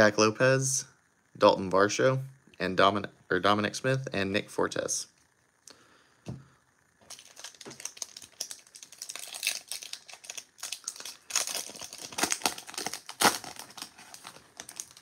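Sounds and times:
card pack wrapper crinkling: 7.0s - 15.0s.

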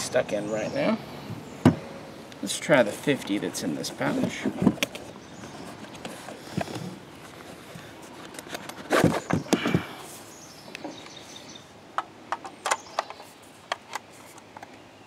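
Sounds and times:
rustling and knocks: 4.1s - 10.0s.

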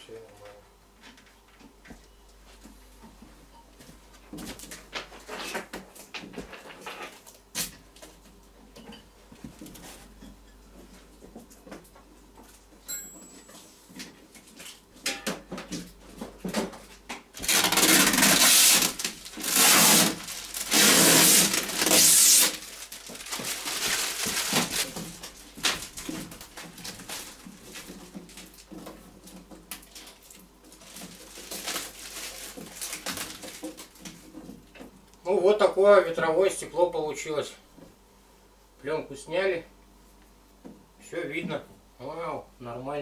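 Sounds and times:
plastic film crackling as peeled: 17.4s - 28.7s, 29.7s - 34.2s.

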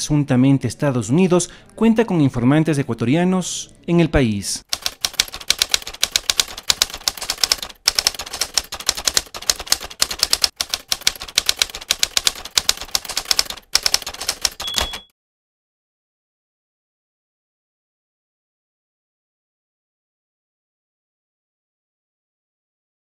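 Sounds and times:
typewriter keys clacking: 4.7s - 15.1s
typewriter bell ring: 13.8s - 15.1s.

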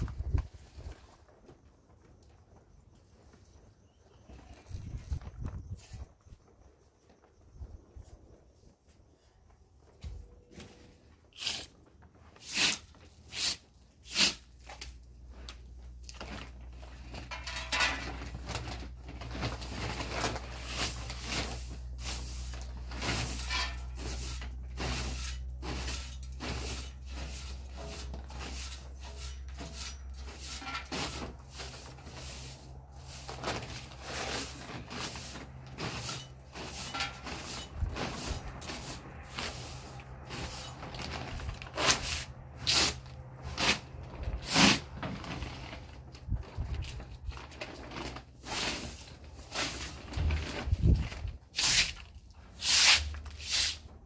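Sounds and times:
broom sweeping concrete: 11.3s - 15.0s, 19.5s - 45.8s, 48.4s - 54.0s.

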